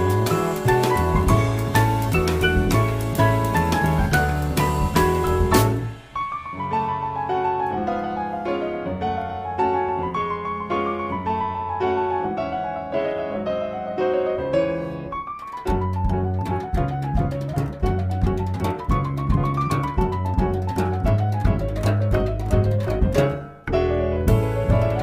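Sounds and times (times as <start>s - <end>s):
low bass notes and percussion: 0.0s - 7.7s, 15.1s - 25.0s
piano melody: 0.0s - 25.0s.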